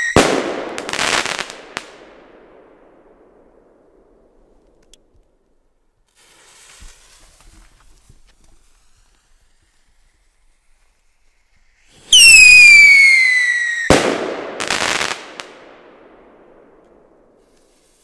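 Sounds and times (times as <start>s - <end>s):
firework rocket whistle: 0.0s - 1.4s, 8.1s - 15.2s
firework crackling: 0.0s - 2.1s, 6.0s - 18.0s
firework bang: 12.0s - 17.4s.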